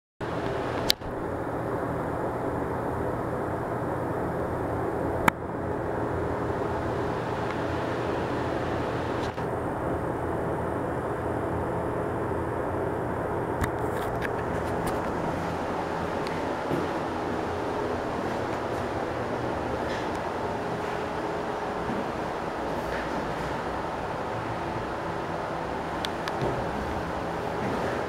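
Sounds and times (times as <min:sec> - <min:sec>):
heater fan rushing air: 0:00.2 - 0:28.0
motor hum: 0:00.2 - 0:28.0.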